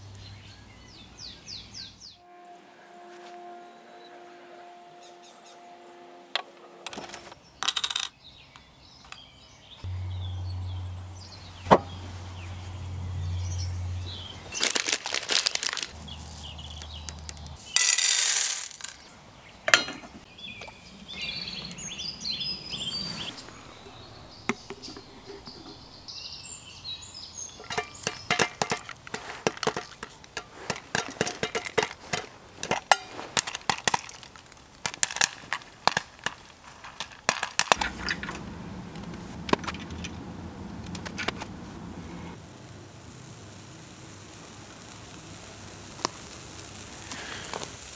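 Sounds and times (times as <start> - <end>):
kernels clinking into metal pot: 6.9 - 8.2, 14.6 - 19.1, 24.5 - 26.0, 27.5 - 38.4
popcorn popping: 14.5 - 19.1, 24.4 - 25.8, 27.5 - 40.2, 42.4 - 47.9.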